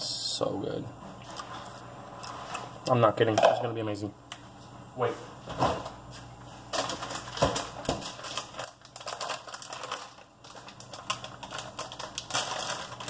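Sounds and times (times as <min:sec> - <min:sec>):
kitchen items clicking and rustling: 0:06.7 - 0:13.0.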